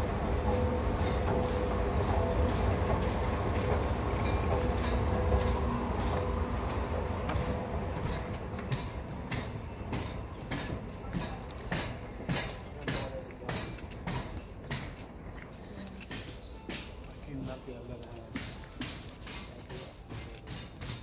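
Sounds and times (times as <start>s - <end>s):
escalator rumbling: 0.0s - 15.0s
light escalator clicks: 0.0s - 21.0s.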